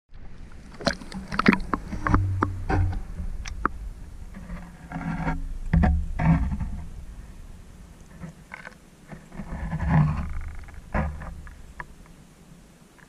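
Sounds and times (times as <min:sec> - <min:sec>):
fish trap knocks and scrapes: 0:00.8 - 0:07.2, 0:08.2 - 0:11.9
heavy thuds: 0:01.0 - 0:08.4.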